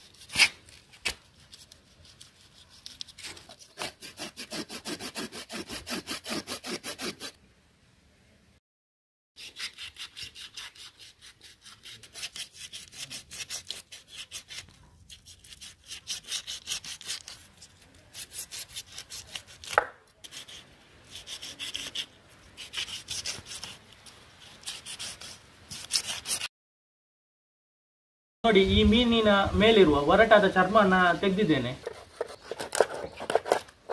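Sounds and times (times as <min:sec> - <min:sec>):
knife scraping fish scales: 0:00.0 - 0:07.4, 0:09.4 - 0:26.5, 0:31.8 - 0:33.9.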